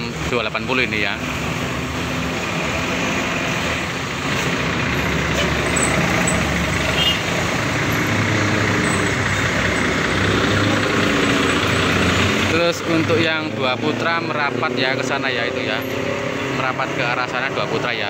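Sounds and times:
bus diesel engine driving past: 0.0 - 18.0.

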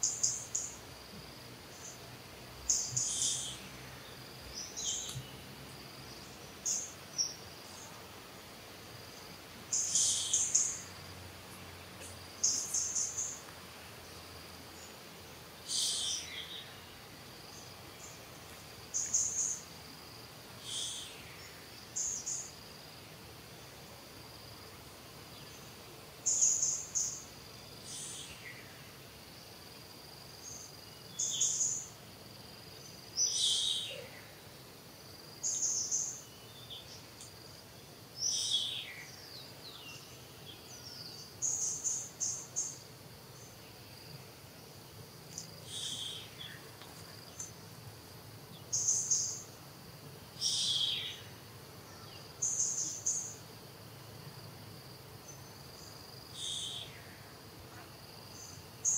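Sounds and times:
birds chirping: 1.7 - 8.5, 9.1 - 19.7.

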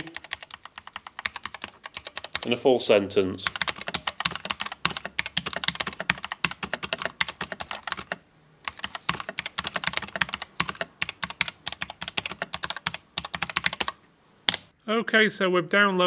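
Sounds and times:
mechanical keyboard typing: 0.0 - 2.5, 3.4 - 14.7.

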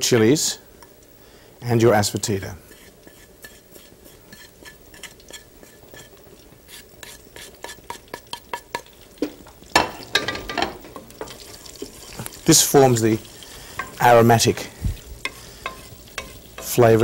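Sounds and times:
spices sizzling in hot fat: 0.0 - 17.0
wooden spoon tapping and scraping: 2.1 - 12.4, 13.7 - 14.2, 15.2 - 17.0.

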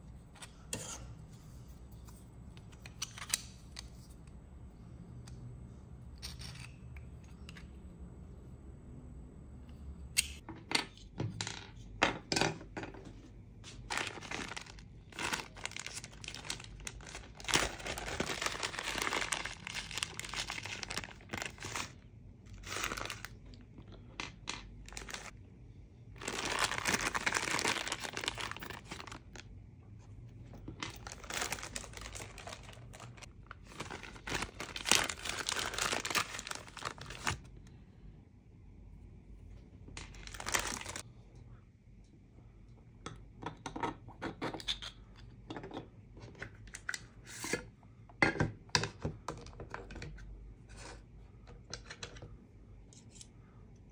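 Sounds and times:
plastic bag crinkling: 13.8 - 23.4, 24.8 - 25.3, 26.2 - 29.4, 30.8 - 37.5, 40.1 - 41.0.

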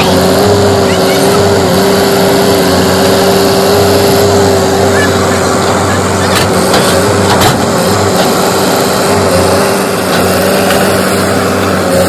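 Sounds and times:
diesel engine running under work: 0.0 - 12.0.

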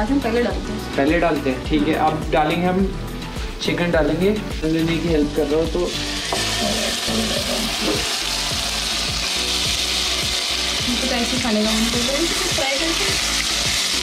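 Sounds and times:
chicken sizzling in butter: 5.9 - 14.0.

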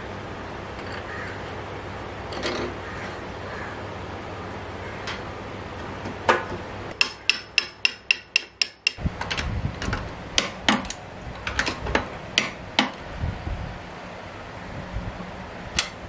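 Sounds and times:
hammer tapping on steel: 7.0 - 9.0.

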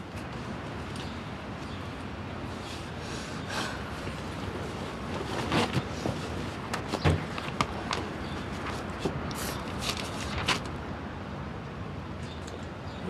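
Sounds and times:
steady background noise: 0.0 - 13.0
rustles and light knocks: 4.0 - 10.8
notebook pages flipping: 6.8 - 10.7.

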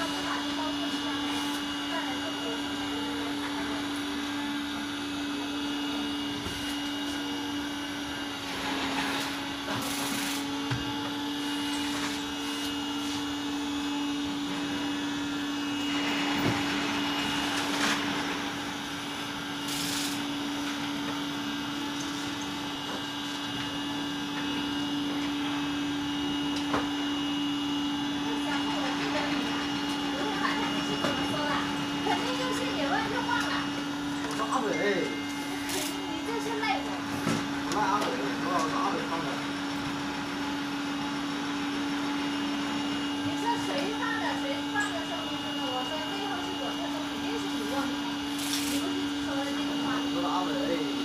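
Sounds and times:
suction fan humming: 0.0 - 51.0.

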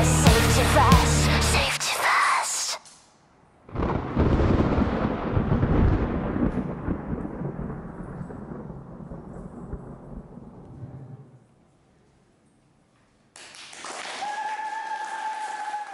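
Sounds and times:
thunder clap and rumble: 3.7 - 11.5.

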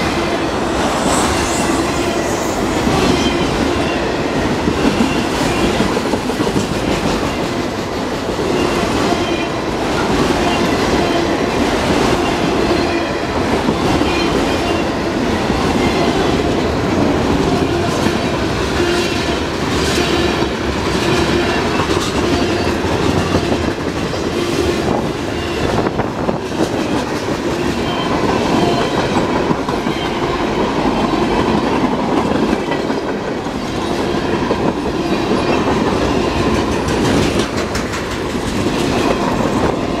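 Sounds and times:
steel wheels rolling on rail: 0.0 - 40.0
wheels clicking over rail joints: 35.4 - 39.6.

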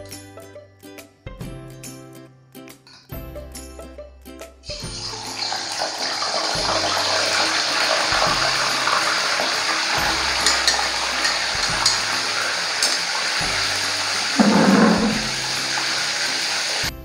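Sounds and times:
fish frying in hot oil: 4.7 - 17.0.

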